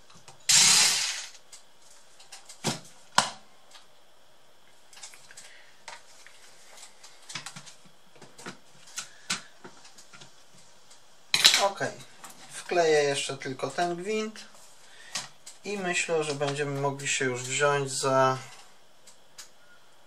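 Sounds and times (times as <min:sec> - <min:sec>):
electric screwdriver running: 0:00.5 - 0:01.4.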